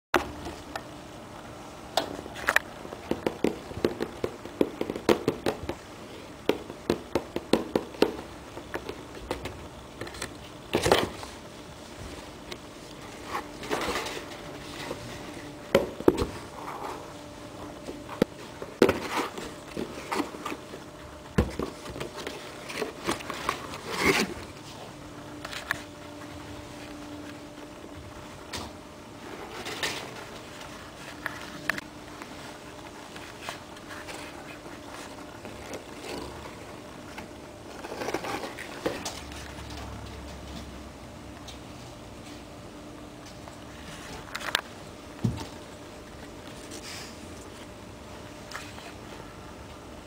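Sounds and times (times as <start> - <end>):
cardboard scraping rustles: 16.2 - 24.9, 29.1 - 39.8.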